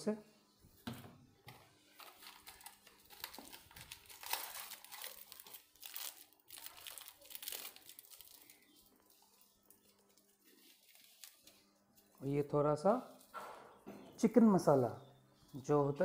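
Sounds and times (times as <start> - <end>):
plastic packet crinkling: 1.9 - 12.2.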